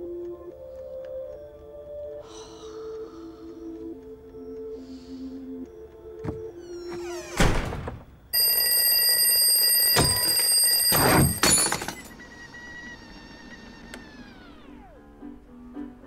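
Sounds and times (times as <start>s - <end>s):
alarm clock ringing: 8.3s - 15.0s.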